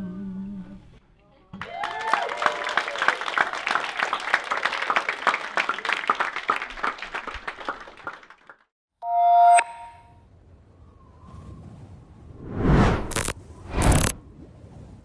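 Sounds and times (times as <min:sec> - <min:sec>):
audience applauding: 0:01.6 - 0:08.7
sound effect with bright tones: 0:12.5 - 0:14.2.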